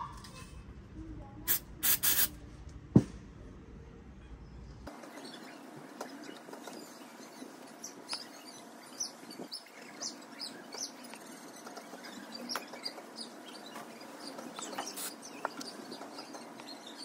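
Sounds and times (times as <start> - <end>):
faint steady background noise: 0.0 - 17.0
small birds chirping: 4.9 - 17.0.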